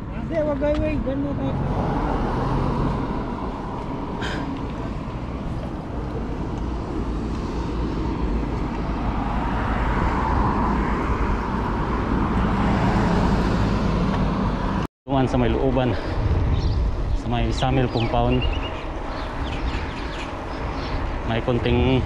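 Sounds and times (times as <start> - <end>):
passing car traffic: 0.0 - 22.0
wind on microphone: 15.4 - 22.0.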